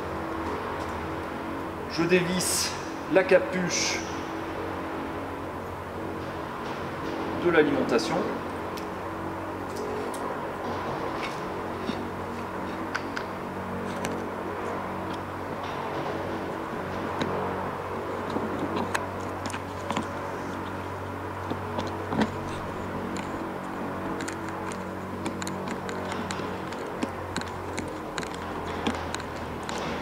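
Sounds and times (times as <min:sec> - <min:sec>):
steady low hum: 0:00.0 - 0:30.0
small metal clicks and taps: 0:24.2 - 0:29.9.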